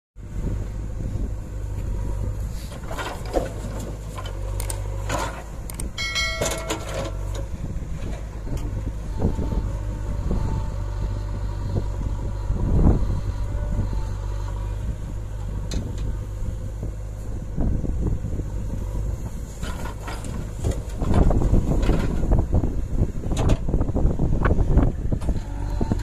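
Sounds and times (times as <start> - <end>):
diesel engine running: 0.2 - 26.0
chime-like tone: 6.0 - 7.3
bucket knocking and scraping dirt: 6.1 - 7.5.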